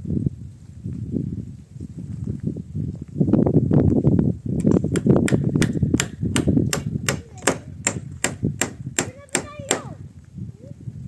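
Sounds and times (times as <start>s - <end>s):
hammer nailing wooden boards: 4.9s - 10.0s.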